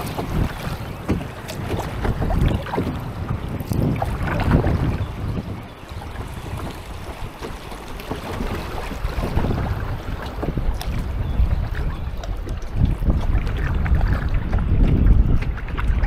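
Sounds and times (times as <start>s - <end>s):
water splashing around kayak: 0.0s - 16.0s
wind rumble on microphone: 0.0s - 16.0s.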